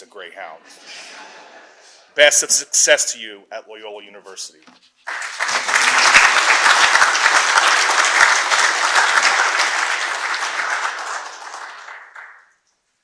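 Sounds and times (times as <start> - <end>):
audience applauding: 5.1 - 12.6.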